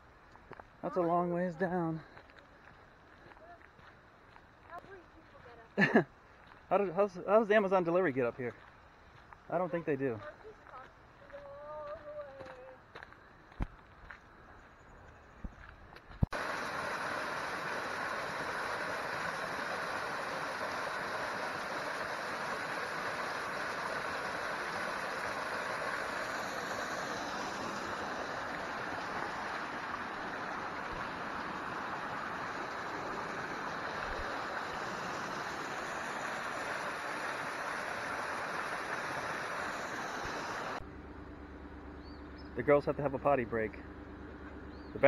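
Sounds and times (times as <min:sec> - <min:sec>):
stream rushing over rocks: 0:16.3 - 0:40.8.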